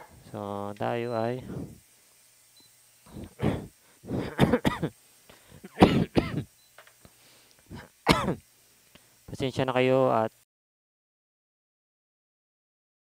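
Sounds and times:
man clearing throat: 0:03.4 - 0:05.0, 0:05.6 - 0:06.5, 0:07.7 - 0:08.4
man coughing: 0:03.4 - 0:05.0, 0:05.6 - 0:06.5, 0:07.7 - 0:08.4.

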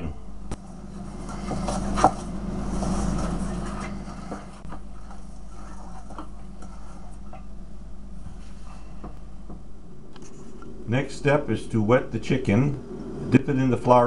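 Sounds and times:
steady low hum: 0:00.0 - 0:14.0
fingers rubbing flour in bowl: 0:00.8 - 0:07.6.

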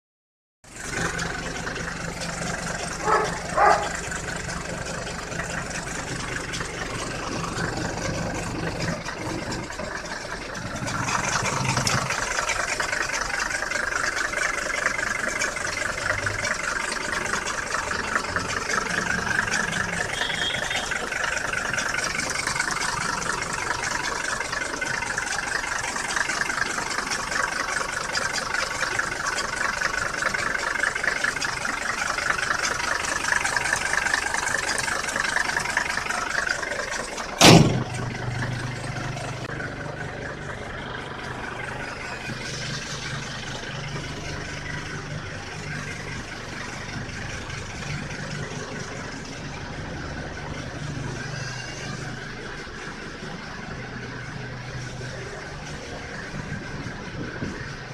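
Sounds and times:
diesel engine idling: 0:00.6 - 0:57.9.

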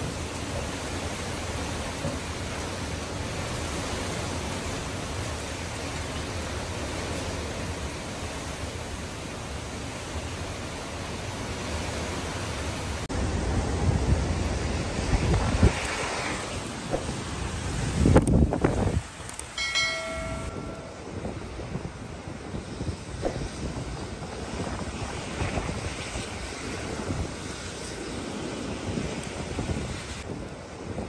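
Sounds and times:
heavy rain: 0:00.0 - 0:19.9
wind buffeting microphone: 0:13.1 - 0:31.0.

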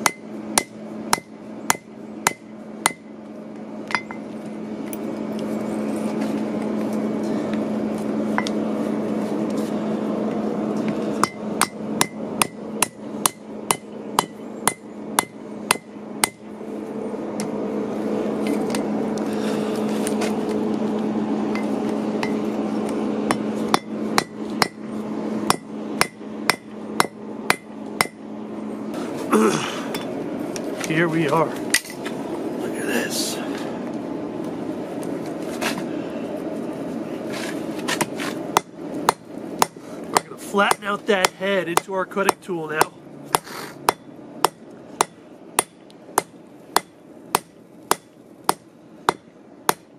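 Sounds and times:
hammer striking hot metal on anvil: 0:00.0 - 0:03.1, 0:11.2 - 0:16.4, 0:23.3 - 0:24.8, 0:25.5 - 0:28.2, 0:38.6 - 0:49.9
low steady hum: 0:00.0 - 0:49.9.

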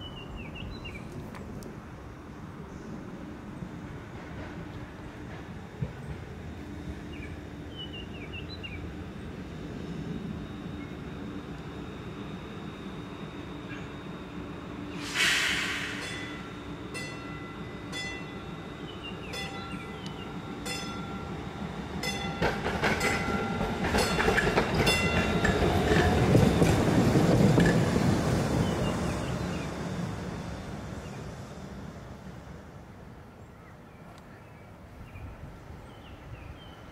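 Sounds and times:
streetcar wheels rumbling on rails: 0:00.0 - 0:36.9
streetcar bell ringing: 0:15.8 - 0:27.8.

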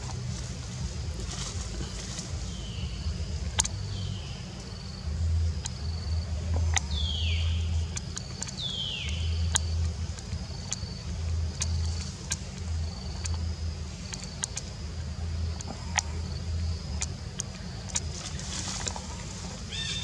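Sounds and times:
low rumble: 0:00.0 - 0:20.0
sharp clicks: 0:03.6 - 0:03.8, 0:07.9 - 0:14.8
high wild calls falling in pitch: 0:18.9 - 0:20.0.

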